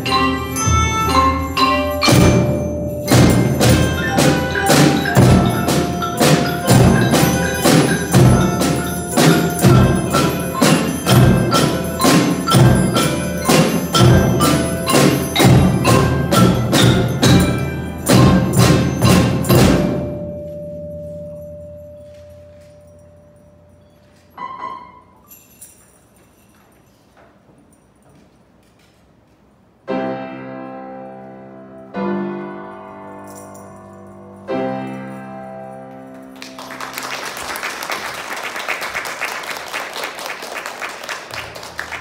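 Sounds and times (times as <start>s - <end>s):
children's percussion band playing: 0.0s - 23.8s, 24.4s - 25.4s, 36.3s - 42.0s.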